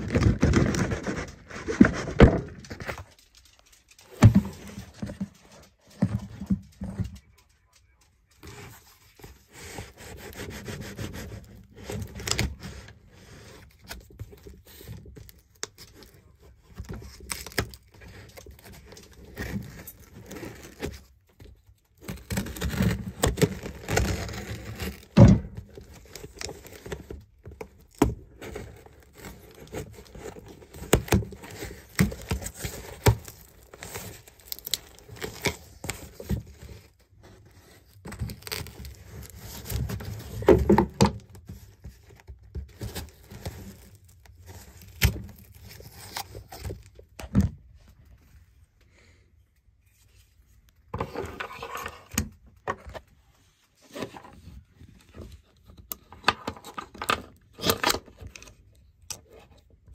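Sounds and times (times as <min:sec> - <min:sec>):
cardboard and plastic crinkling: 0:00.0 - 0:48.8, 0:49.7 - 0:59.9
packing tape tearing: 0:28.6 - 0:36.8.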